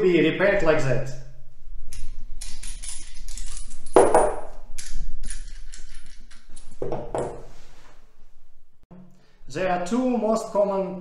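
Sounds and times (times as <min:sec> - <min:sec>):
metal fittings clinking and knocking: 0:01.9 - 0:07.4.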